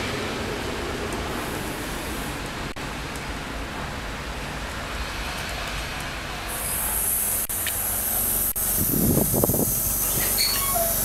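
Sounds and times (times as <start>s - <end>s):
train running on rails: 0.0s - 11.0s
steady high hiss: 4.9s - 11.0s
wheel squeals: 10.0s - 11.0s.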